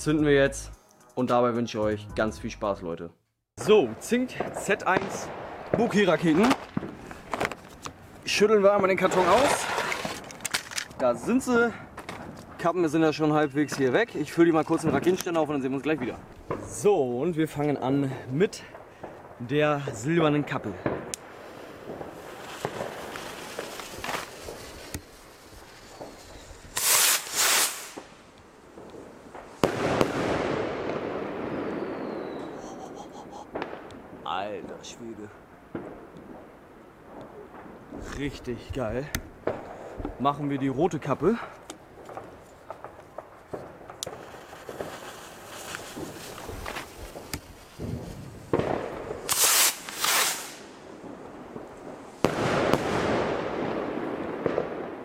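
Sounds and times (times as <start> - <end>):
firework bangs: 3.6 - 10.4, 13.7 - 16.9, 20.2 - 35.0, 35.7 - 40.6, 41.2 - 55.0
rough crackling noise: 3.6 - 18.7, 19.3 - 30.2, 37.2 - 52.4
firework rockets hissing: 20.8 - 28.3, 29.3 - 33.9, 43.5 - 51.2.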